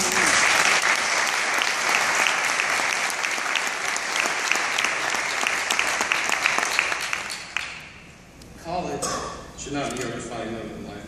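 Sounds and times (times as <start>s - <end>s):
close hand claps: 0.0s - 7.9s
audience applauding: 0.0s - 8.0s.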